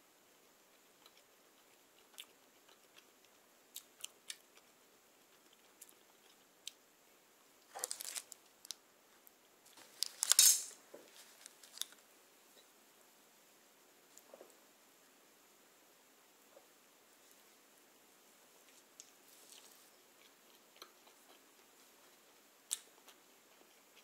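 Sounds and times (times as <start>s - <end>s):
paper wrapper rustling: 7.7s - 8.8s, 9.7s - 12.0s.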